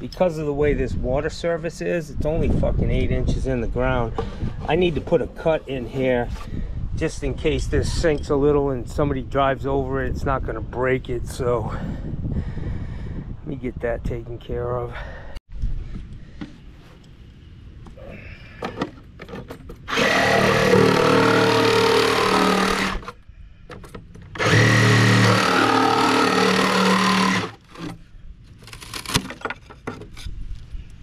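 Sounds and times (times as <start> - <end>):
power saw cutting: 19.9 - 23.1, 24.4 - 27.6.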